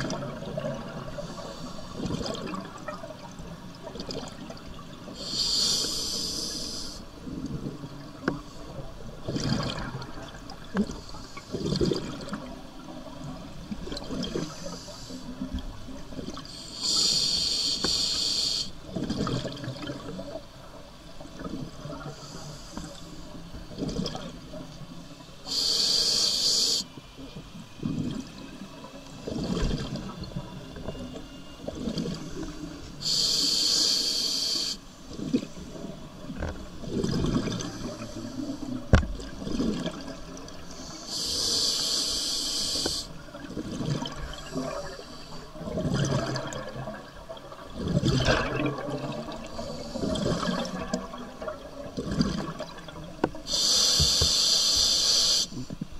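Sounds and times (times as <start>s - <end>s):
exhaled bubbles rumbling: 2.0s - 5.1s, 7.2s - 10.9s, 11.5s - 14.6s, 18.9s - 20.4s, 29.1s - 30.6s, 35.1s - 40.6s, 43.2s - 45.0s, 45.6s - 53.5s
regulator hissing inhalations: 5.2s - 7.0s, 16.6s - 18.8s, 25.4s - 26.9s, 33.0s - 34.8s, 40.7s - 43.1s, 53.4s - 55.7s.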